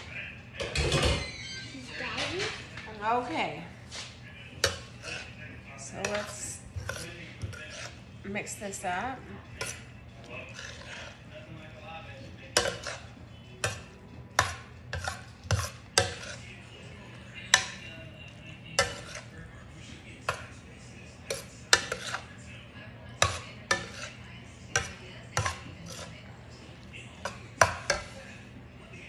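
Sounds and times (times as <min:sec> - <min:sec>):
metal spoon scraping a skillet: 0:03.9 - 0:11.4, 0:12.5 - 0:19.5, 0:20.2 - 0:22.5, 0:23.2 - 0:28.5.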